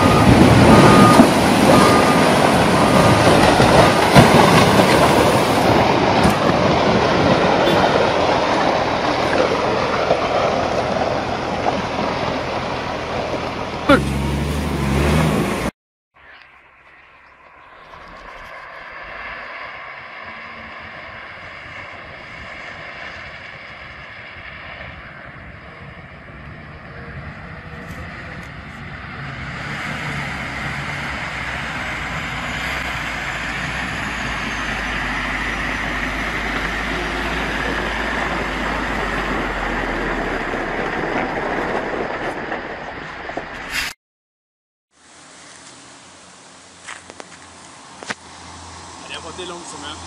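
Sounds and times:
truck diesel engine: 0.0s - 15.7s, 17.9s - 43.9s
water rushing and splashing: 0.0s - 15.7s.

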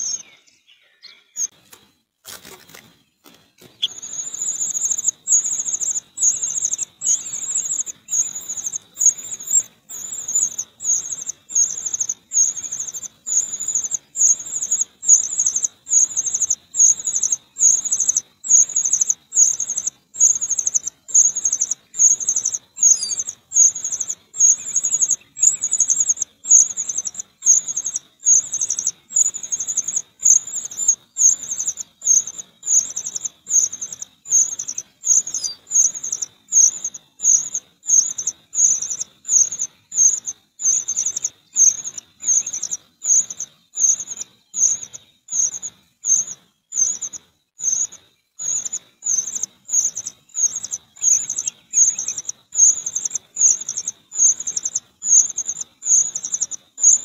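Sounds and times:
bird chick begging trills: 3.7s - 38.8s.

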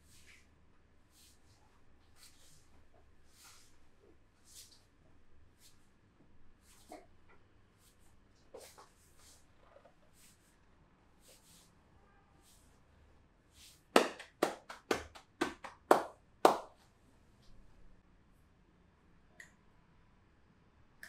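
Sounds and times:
hands slapping in massage: 13.9s - 16.8s.

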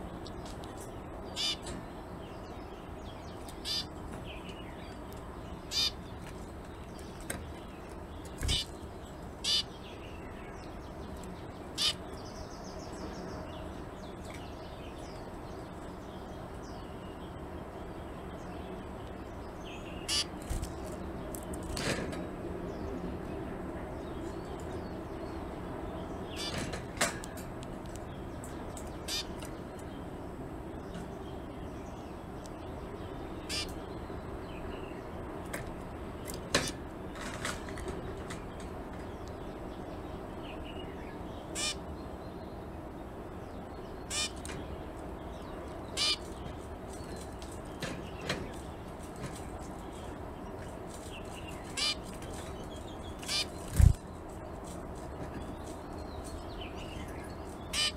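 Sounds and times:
steady low background hum: 0.0s - 57.9s
finch calls: 1.3s - 1.8s, 3.5s - 4.0s, 5.7s - 6.1s, 8.2s - 9.8s, 11.7s - 12.2s, 20.0s - 20.8s, 26.3s - 26.8s, 28.8s - 29.6s, 33.4s - 33.8s, 41.5s - 41.9s, 44.0s - 44.7s, 45.9s - 47.2s, 51.2s - 53.9s, 56.8s - 57.9s
finch nasal calls: 1.4s - 1.7s, 3.6s - 3.9s, 5.7s - 6.0s, 8.4s - 8.7s, 9.4s - 9.8s, 11.8s - 12.0s, 20.0s - 20.4s, 29.1s - 29.4s, 33.4s - 33.8s, 41.5s - 41.8s, 44.1s - 44.4s, 46.0s - 46.4s, 51.7s - 52.1s, 53.2s - 53.9s.

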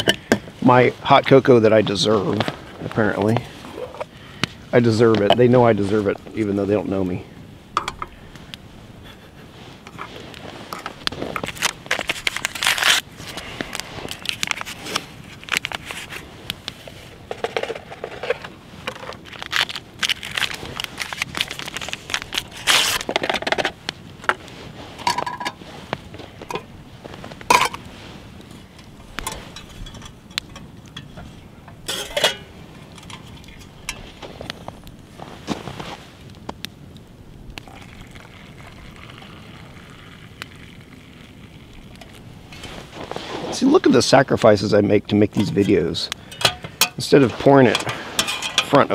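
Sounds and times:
packets crinkling and rustling: 10.1s - 27.8s
metal cookpot scraping and clinking: 29.2s - 34.1s, 46.3s - 48.9s.

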